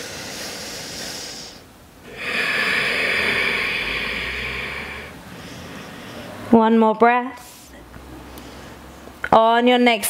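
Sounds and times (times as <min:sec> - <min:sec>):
person breathing deeply: 0:00.0 - 0:06.5.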